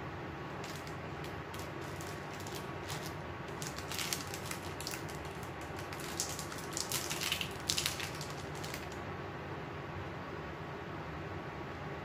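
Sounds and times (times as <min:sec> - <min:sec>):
electric fan running: 0:00.0 - 0:12.0
bubble wrap crinkling: 0:00.5 - 0:09.0.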